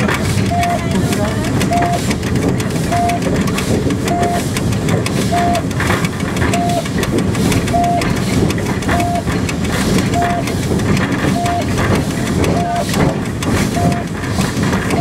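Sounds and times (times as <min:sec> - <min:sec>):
locomotive rumble and rattle: 0:00.0 - 0:15.0
short beeping tone: 0:00.5 - 0:00.9, 0:01.7 - 0:02.0, 0:02.9 - 0:03.2, 0:04.1 - 0:04.4, 0:05.3 - 0:05.6, 0:06.5 - 0:06.8, 0:07.7 - 0:08.1, 0:08.9 - 0:09.3, 0:10.1 - 0:10.4, 0:11.3 - 0:11.7, 0:12.5 - 0:12.9, 0:13.7 - 0:14.0.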